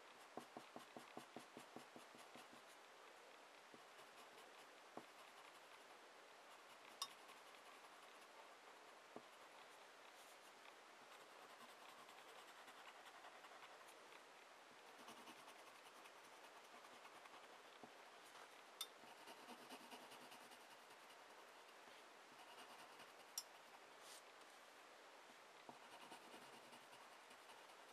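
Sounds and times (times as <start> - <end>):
pencil scratching on paper: 0.1 - 2.8, 3.7 - 5.9, 6.5 - 14.0, 14.9 - 17.7, 19.0 - 21.8, 22.4 - 23.8, 25.7 - 27.9.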